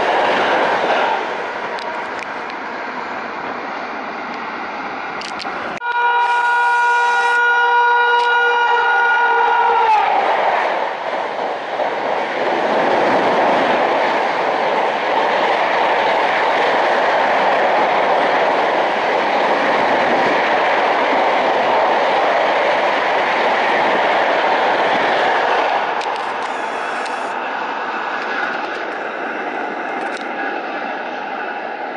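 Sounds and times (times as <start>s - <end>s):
train rushing past on rails: 0.0s - 31.9s
train horn: 5.8s - 10.1s.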